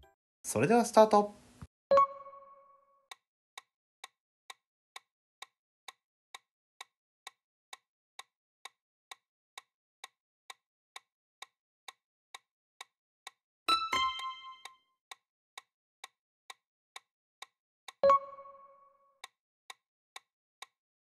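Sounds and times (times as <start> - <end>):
clock-like ticking: 4.5 - 12.0, 15.6 - 20.8.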